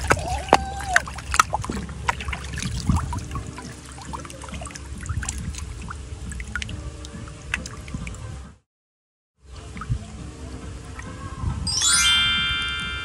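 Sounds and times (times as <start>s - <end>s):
wet clicks and drips: 0.0s - 8.3s
mud sloshing and trickling: 0.0s - 8.6s.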